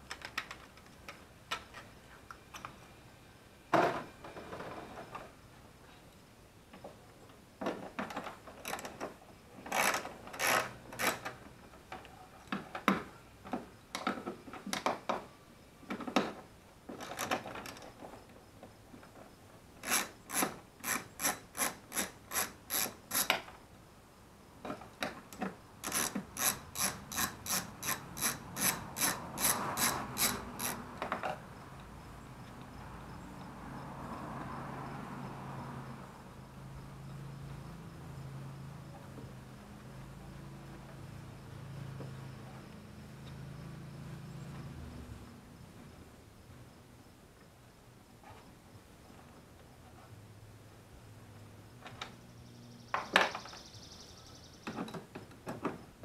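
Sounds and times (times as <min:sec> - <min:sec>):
socket ratchet clicking: 0:19.8 - 0:23.4, 0:25.8 - 0:30.8.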